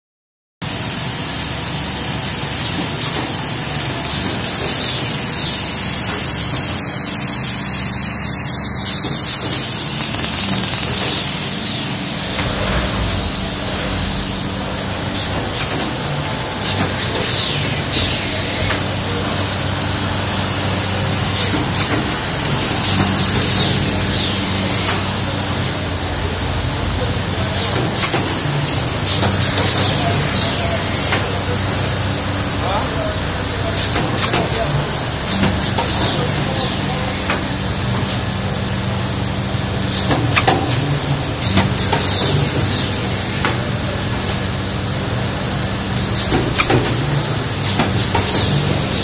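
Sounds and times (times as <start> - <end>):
machine running with hiss: 0.6 - 49.0
low hum: 11.5 - 16.6.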